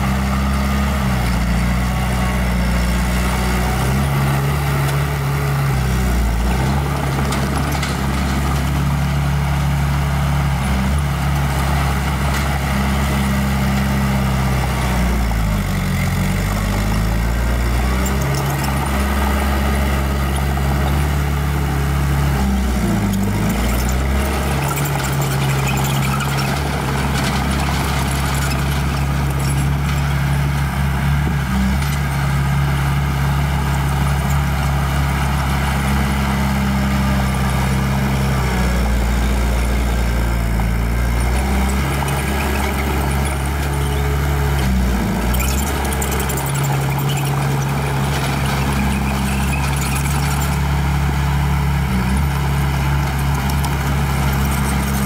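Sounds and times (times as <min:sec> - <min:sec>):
heavy machinery diesel engine: 0:00.0 - 0:55.0.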